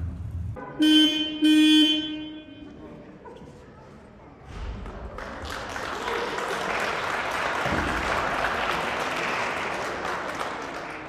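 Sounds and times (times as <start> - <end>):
crowd applauding: 4.9 - 11.0.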